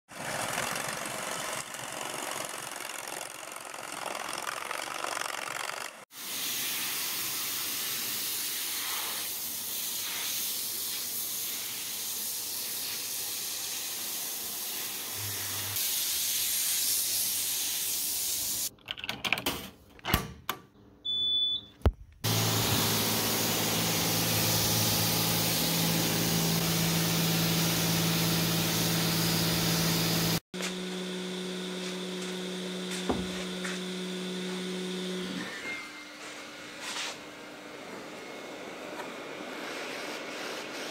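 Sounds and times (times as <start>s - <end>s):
pressure washer spray hiss: 6.2s - 18.7s, 22.3s - 30.4s.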